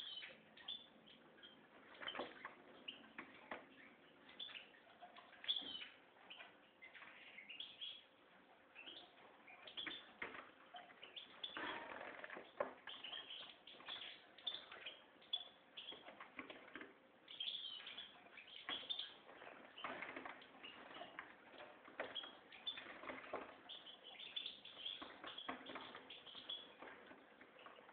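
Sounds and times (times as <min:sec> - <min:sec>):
bird twittering song: 0:00.0 - 0:27.9.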